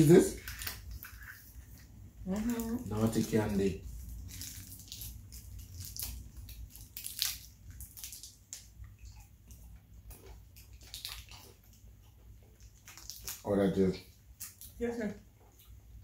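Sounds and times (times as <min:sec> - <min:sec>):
candy wrappers crinkling: 0:00.0 - 0:01.7, 0:02.3 - 0:08.8.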